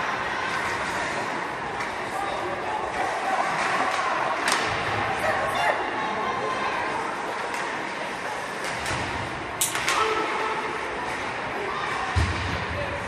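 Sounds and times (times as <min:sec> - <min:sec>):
crowd noise: 0:00.0 - 0:13.0.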